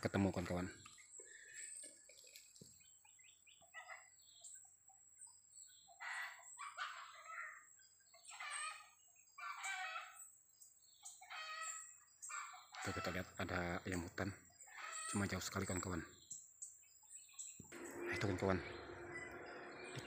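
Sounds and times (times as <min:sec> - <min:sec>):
small bird chirps: 0:00.0 - 0:20.0
faint junglefowl calls: 0:03.5 - 0:04.6, 0:05.7 - 0:10.3, 0:11.0 - 0:16.1, 0:17.7 - 0:20.0.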